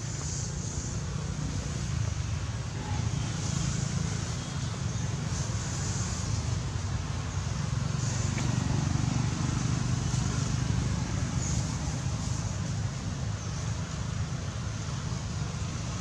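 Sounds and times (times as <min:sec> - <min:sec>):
outdoor background hiss: 0:00.0 - 0:16.0.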